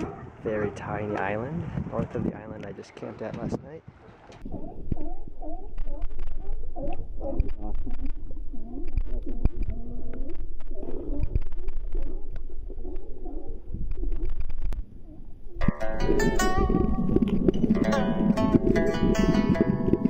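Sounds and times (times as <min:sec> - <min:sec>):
sea lions calling: 0:04.0 - 0:14.2.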